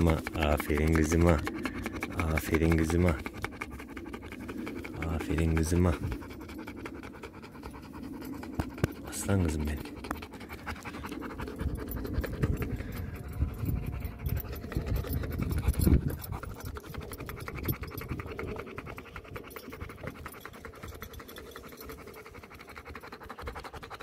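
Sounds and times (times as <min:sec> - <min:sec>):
dog panting: 0:00.0 - 0:24.0.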